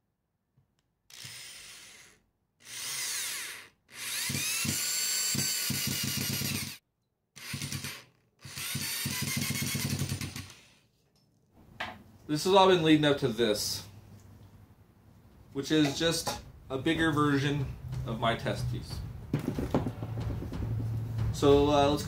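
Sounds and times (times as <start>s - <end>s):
cordless drill driving screws: 1.1s - 6.8s, 7.4s - 10.8s.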